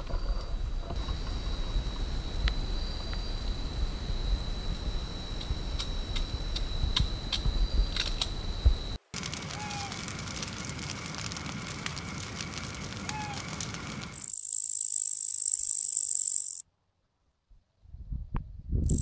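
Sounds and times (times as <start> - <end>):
campfire crackling: 0.0 - 16.6
night insects buzzing: 0.0 - 16.6
loud high-pitched insect chorus: 1.0 - 10.1, 11.7 - 16.6.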